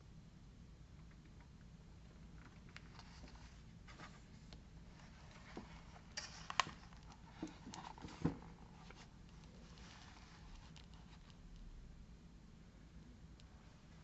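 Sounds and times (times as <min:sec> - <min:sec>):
paper rustling: 0:02.9 - 0:11.3.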